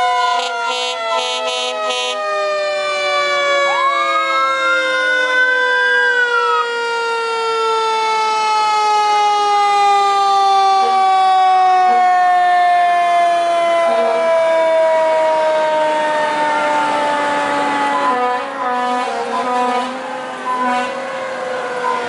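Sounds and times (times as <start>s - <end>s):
falling siren tone: 0.0s - 22.0s
rising siren: 0.0s - 22.0s
short horn blasts: 0.4s - 2.2s.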